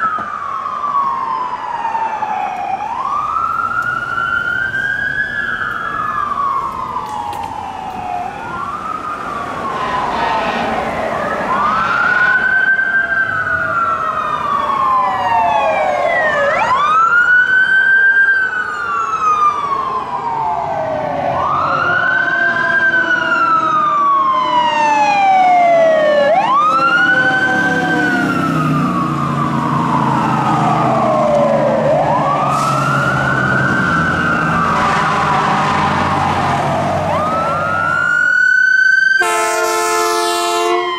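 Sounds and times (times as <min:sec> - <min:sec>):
sirens wailing: 0:00.0 - 0:40.9
heavy engine drone: 0:26.3 - 0:38.0.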